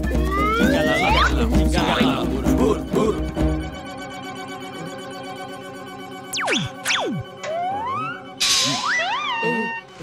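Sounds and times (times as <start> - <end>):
cartoon background music: 0.0 - 10.0.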